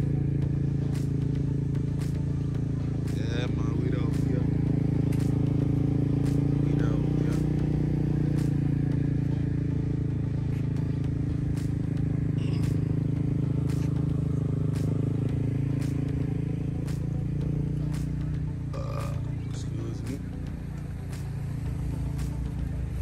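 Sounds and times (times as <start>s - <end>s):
vehicle engine running: 0.0s - 23.0s.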